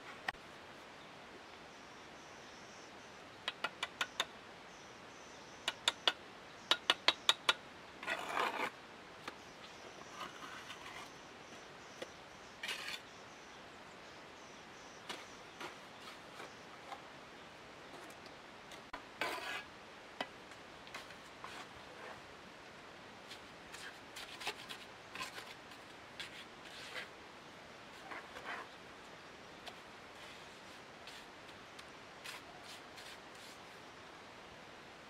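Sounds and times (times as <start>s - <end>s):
trowel tapping bricks: 3.5s - 4.3s, 5.7s - 8.2s
trowel scraping through mortar: 8.0s - 8.7s, 10.1s - 11.1s, 12.6s - 13.0s, 19.2s - 19.7s.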